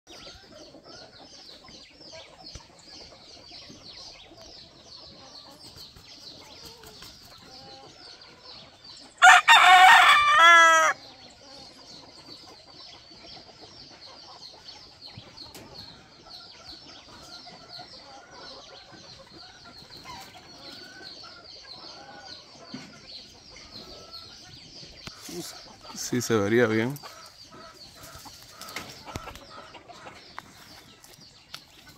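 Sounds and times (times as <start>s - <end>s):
rooster crowing: 9.2s - 11.0s.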